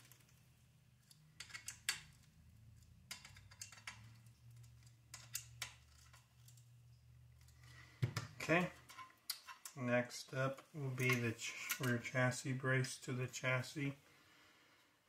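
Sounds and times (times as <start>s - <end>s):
low steady hum: 0.0s - 14.8s
hex wrench tapping screws: 1.1s - 2.3s.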